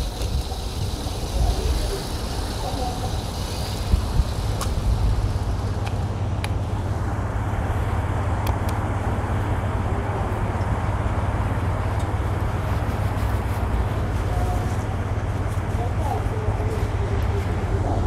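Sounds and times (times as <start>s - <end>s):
cars idling in traffic: 0.0s - 18.0s.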